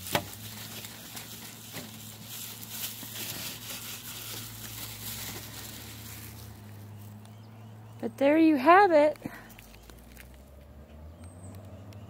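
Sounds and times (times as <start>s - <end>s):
paper towel wiping plastic: 0.0s - 6.5s.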